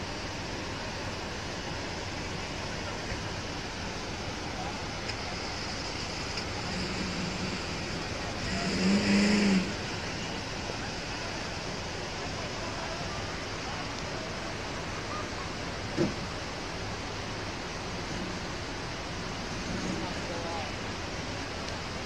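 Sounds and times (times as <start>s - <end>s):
river rapids rushing: 0.0s - 22.0s
vehicle engine revving: 4.8s - 12.6s.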